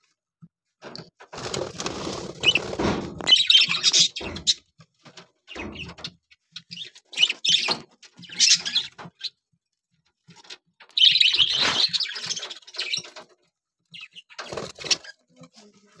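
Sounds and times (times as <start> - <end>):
wing flutter: 1.4 - 3.4
budgerigars chirping: 3.2 - 4.6, 6.6 - 9.3, 10.8 - 13.2.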